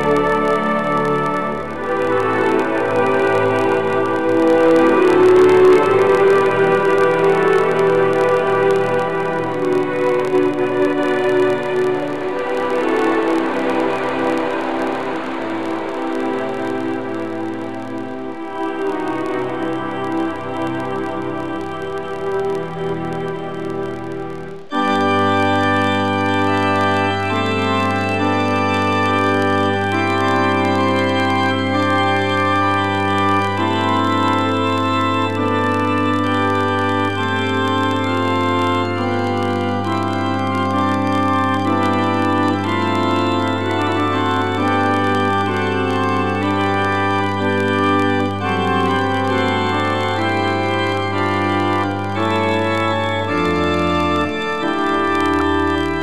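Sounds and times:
organ chords over held bass: 0.0s - 56.0s.

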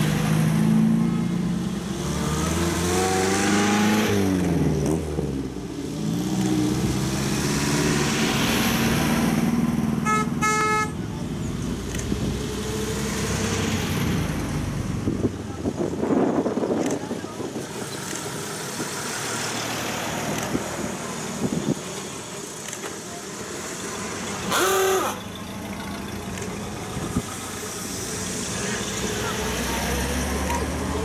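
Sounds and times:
cars driving past: 0.0s - 31.0s
car horn toot: 10.0s - 11.0s, 24.5s - 25.2s.

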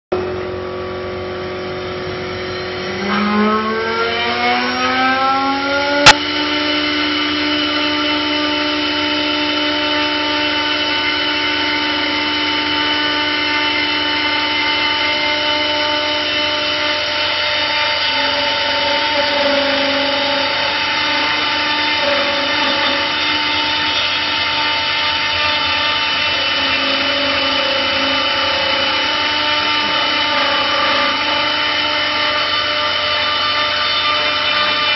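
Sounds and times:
low tone: 0.1s - 8.2s
wood cutting noise: 0.2s - 34.9s
wood lathe whining: 0.2s - 34.9s.

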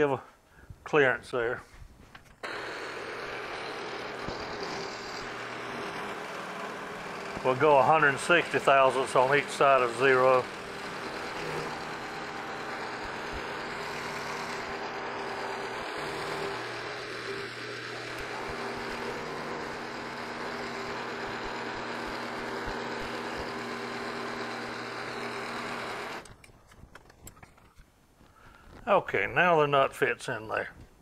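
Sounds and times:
milling machine cutting metal: 2.4s - 26.4s.

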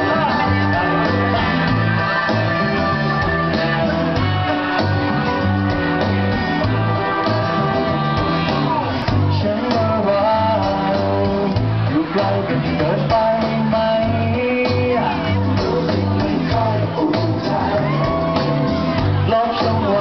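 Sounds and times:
backing music with bass line: 0.0s - 20.0s
male vocal group singing: 8.8s - 18.4s, 19.2s - 20.0s.

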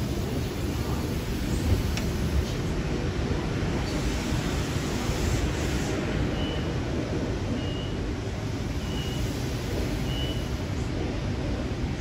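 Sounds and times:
trains rumbling on tracks: 0.0s - 12.0s.

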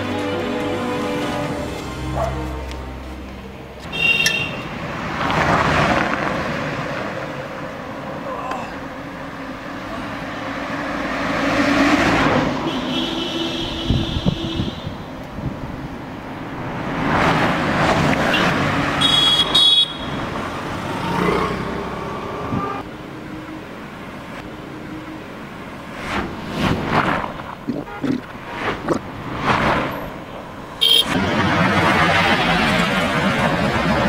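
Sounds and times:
vehicles passing: 0.0s - 34.0s
car horn honking: 3.8s - 4.7s, 12.6s - 15.0s, 18.3s - 20.3s, 27.9s - 28.2s, 30.8s - 31.2s.

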